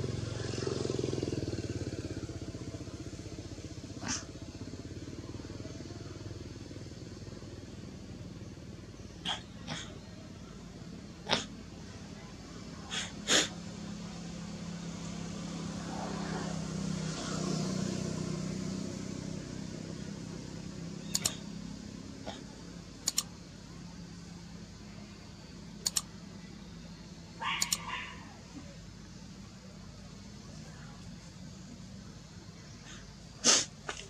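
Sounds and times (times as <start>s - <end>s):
short sharp clicks: 21.1s - 21.4s, 23.0s - 23.3s, 25.8s - 26.1s, 27.6s - 27.8s.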